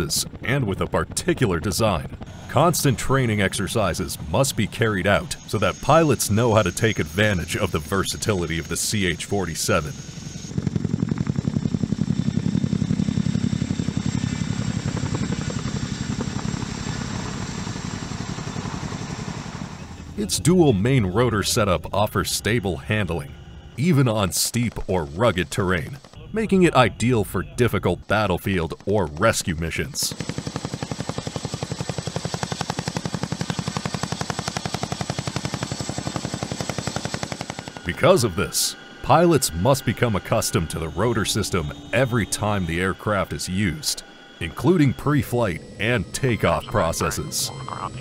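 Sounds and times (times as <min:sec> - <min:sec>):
helicopter rotor thudding: 0:00.0 - 0:27.1, 0:27.8 - 0:48.0
thin high whine: 0:02.5 - 0:10.5, 0:18.4 - 0:28.8, 0:37.4 - 0:48.0.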